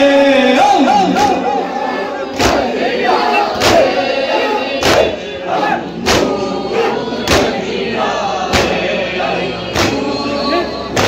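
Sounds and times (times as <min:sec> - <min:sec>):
group chanting: 0:00.0 - 0:11.0
men beating their chests: 0:02.3 - 0:07.6, 0:08.5 - 0:09.0.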